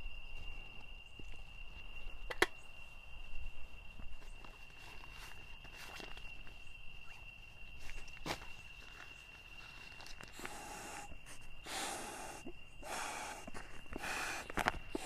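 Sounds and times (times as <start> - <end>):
man blowing breathy puffs: 10.3 - 15.0.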